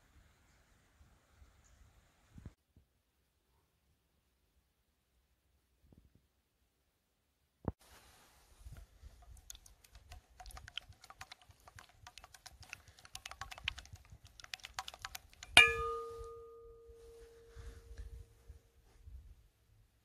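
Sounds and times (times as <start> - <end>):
knock on ringing metal bowl: 15.6 - 17.0.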